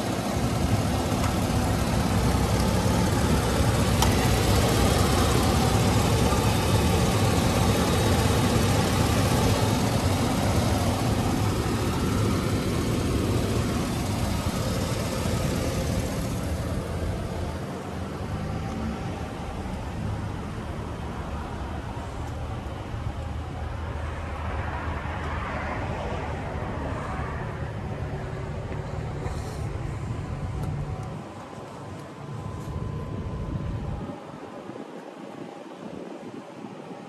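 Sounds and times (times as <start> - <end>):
truck engine idling: 0.0 - 24.3.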